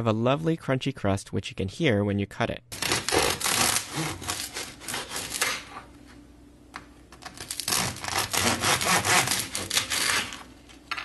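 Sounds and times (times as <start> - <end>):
bread knife sawing crusty bread: 2.8 - 5.6, 7.5 - 10.5.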